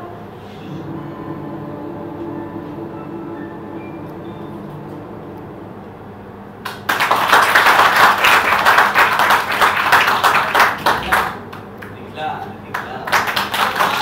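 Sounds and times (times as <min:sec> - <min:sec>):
audience applauding: 0:06.6 - 0:14.0.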